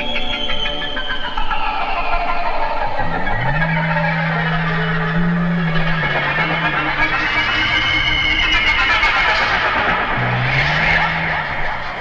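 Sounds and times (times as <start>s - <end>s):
low held note: 2.9s - 9.2s
psychedelic rock band playing: 3.1s - 10.8s.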